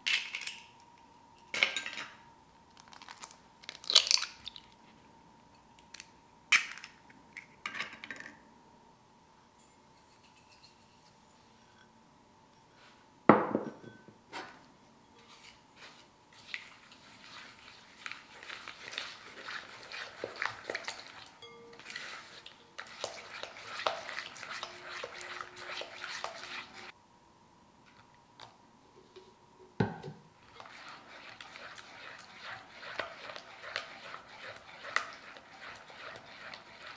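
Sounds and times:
whisk beating in glass bowl: 0:16.4 - 0:26.9, 0:30.4 - 0:36.9.

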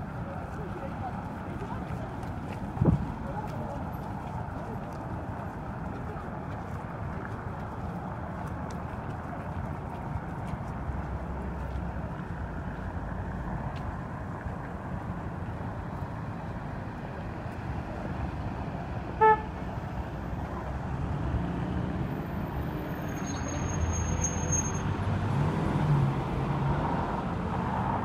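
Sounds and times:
cars passing on wet road: 0:00.0 - 0:28.0
short car horn toot: 0:19.2 - 0:19.5.

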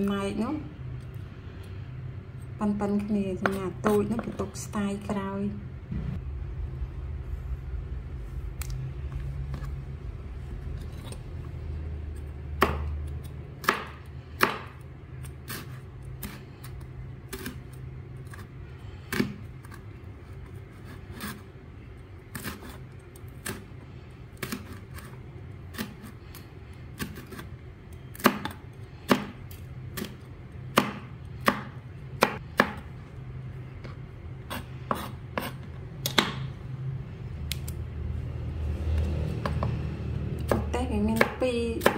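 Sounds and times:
low steady hum: 0:00.0 - 0:41.9
knife chopping on plastic board: 0:12.6 - 0:13.0, 0:13.6 - 0:14.8, 0:28.1 - 0:32.9, 0:33.8 - 0:36.5, 0:40.4 - 0:41.9.

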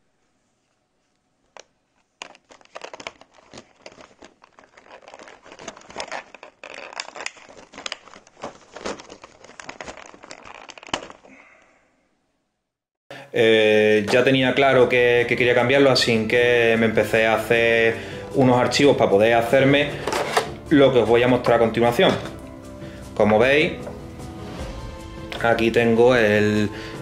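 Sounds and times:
plastic tray crinkling: 0:01.5 - 0:11.3.

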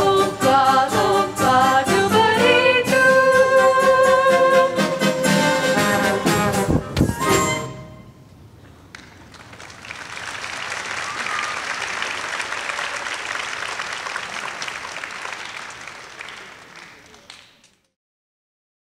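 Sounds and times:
brass chord: 0:01.5 - 0:08.2
audience applauding: 0:08.9 - 0:17.9.

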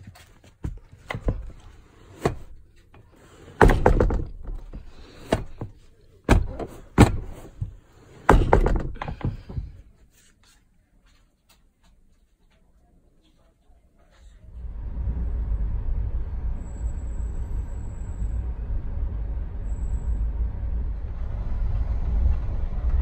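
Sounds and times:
knocks and thumps on bunk: 0:00.6 - 0:09.8.

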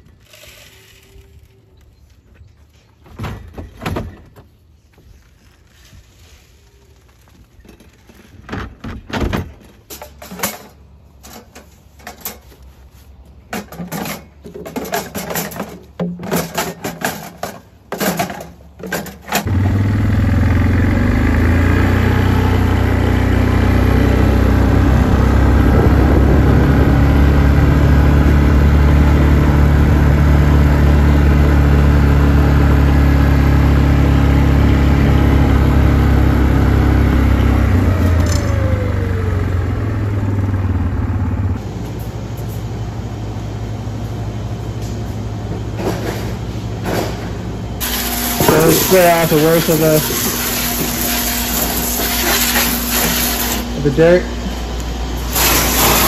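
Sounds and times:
plastic bottles clattering on metal: 0:13.5 - 0:19.4
atv engine running: 0:19.4 - 0:56.0.

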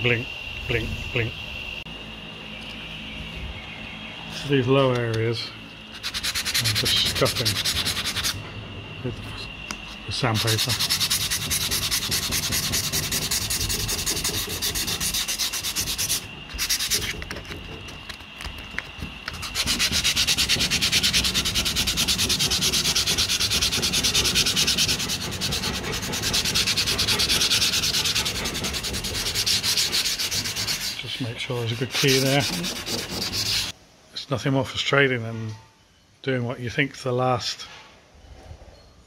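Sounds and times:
sandpaper rubbing on metal: 0:05.9 - 0:08.4, 0:10.1 - 0:18.2, 0:19.2 - 0:33.7.

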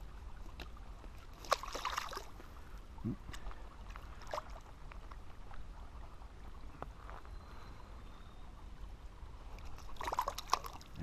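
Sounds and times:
shallow stream running: 0:00.0 - 0:11.0
fish splashing in water: 0:00.3 - 0:02.4, 0:03.6 - 0:05.2, 0:09.6 - 0:11.0.

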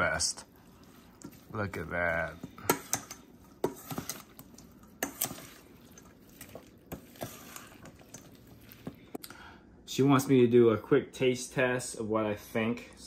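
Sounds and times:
wet squishing of food: 0:00.0 - 0:09.3.

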